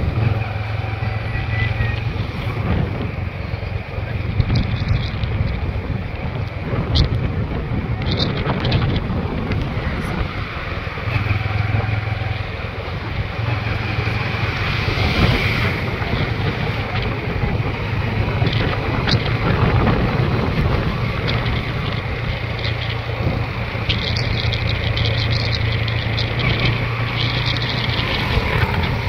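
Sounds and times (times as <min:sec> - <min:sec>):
motorcycle engine droning: 0:00.0 - 0:29.0
wind rushing over microphone: 0:00.0 - 0:29.0.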